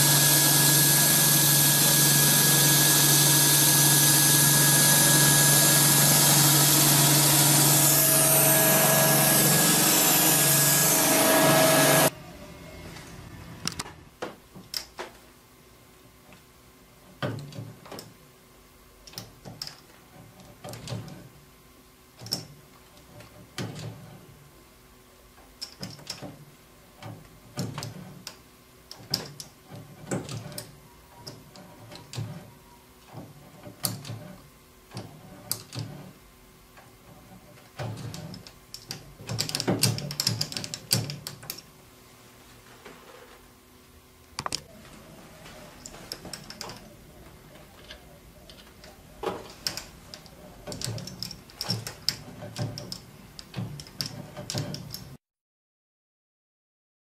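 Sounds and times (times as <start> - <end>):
lathe tool scraping steel: 0.0 - 12.1.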